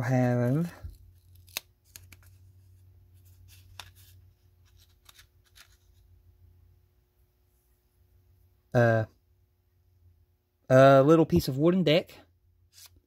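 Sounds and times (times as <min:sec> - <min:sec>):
paper envelope rustling: 0:00.2 - 0:06.0
sharp paper clicks: 0:00.9 - 0:02.4.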